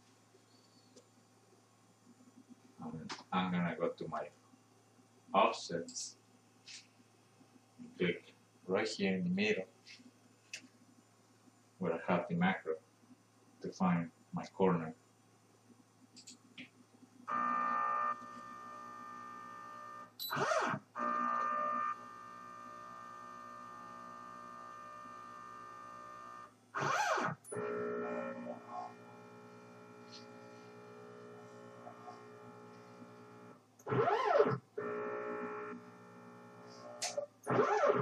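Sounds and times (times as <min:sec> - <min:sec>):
stepper motor whine: 0:17.3 - 0:38.0.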